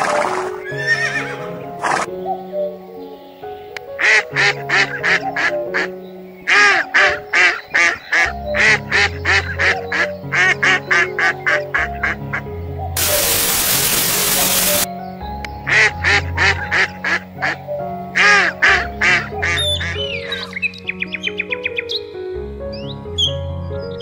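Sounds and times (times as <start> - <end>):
background music: 0.0 - 24.0
duck quacking: 6.5 - 12.2, 15.7 - 17.6, 18.2 - 20.1
loud static hiss: 13.0 - 14.9.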